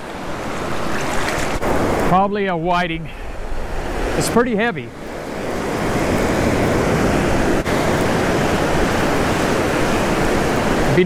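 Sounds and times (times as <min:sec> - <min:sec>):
waves washing up the beach: 0:00.0 - 0:11.0.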